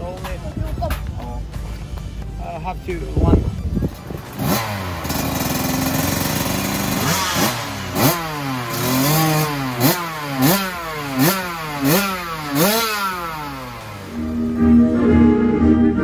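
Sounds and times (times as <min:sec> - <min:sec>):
two-stroke motocross engine revving: 0:03.8 - 0:14.5.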